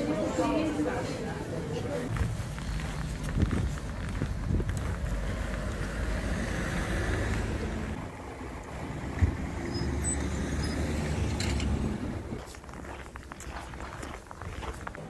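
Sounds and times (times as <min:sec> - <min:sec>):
traffic rumble: 0:00.0 - 0:15.0
wind on microphone: 0:02.1 - 0:05.6.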